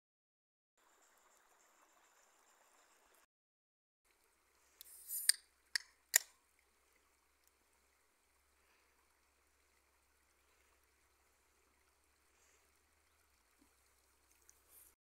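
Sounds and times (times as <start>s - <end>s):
stream trickling: 0.8s - 3.3s, 4.1s - 15.0s
beer can hiss: 4.8s - 5.4s.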